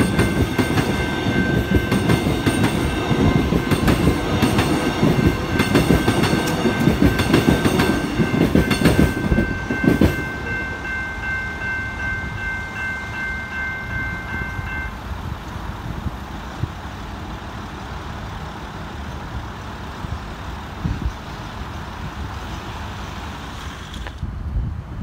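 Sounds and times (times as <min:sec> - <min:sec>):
level crossing warning bells: 0:00.0 - 0:15.0
traffic noise: 0:00.0 - 0:25.0.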